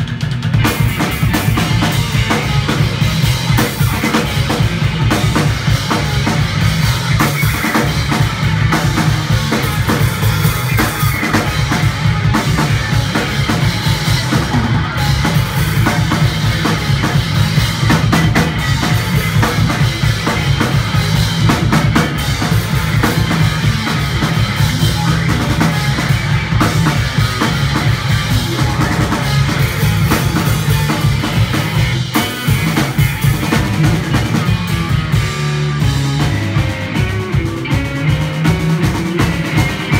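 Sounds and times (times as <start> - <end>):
bass drum: 0.0 - 39.9
bass guitar: 0.0 - 39.9
electric guitar: 0.0 - 39.9.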